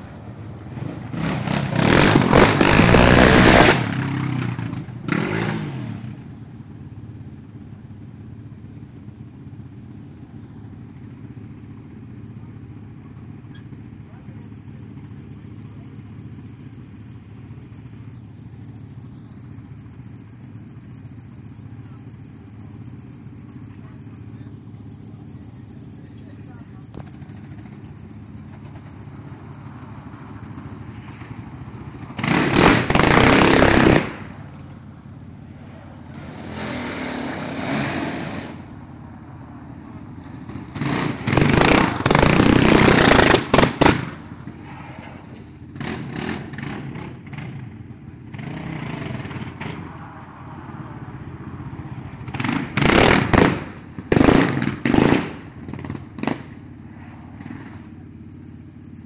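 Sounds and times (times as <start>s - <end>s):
quad engine revving: 0.0s - 6.3s, 29.5s - 34.8s, 35.6s - 58.1s.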